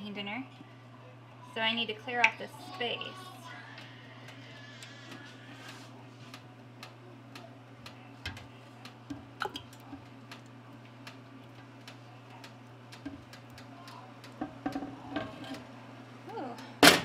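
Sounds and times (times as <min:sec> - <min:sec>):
spatula scraping metal pot: 0:15.0 - 0:15.6.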